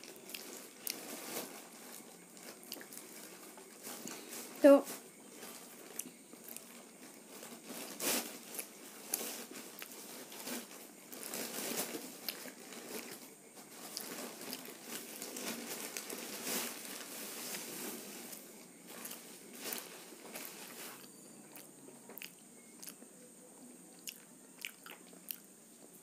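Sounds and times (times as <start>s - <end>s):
chewing: 0.0s - 4.3s, 5.3s - 7.6s, 8.2s - 16.2s, 18.2s - 23.1s, 23.9s - 26.0s
crisp shells crunching: 5.3s - 21.6s.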